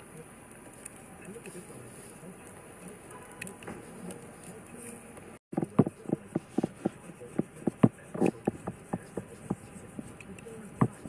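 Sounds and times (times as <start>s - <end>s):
hand rubbing on glass: 5.6s - 11.0s.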